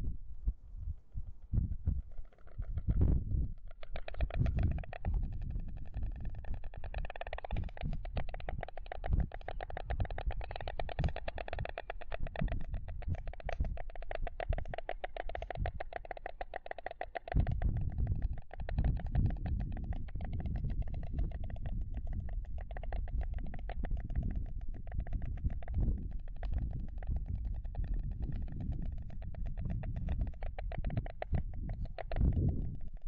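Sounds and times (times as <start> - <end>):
storks clattering bills: 3.6 - 5.4, 6.4 - 17.6.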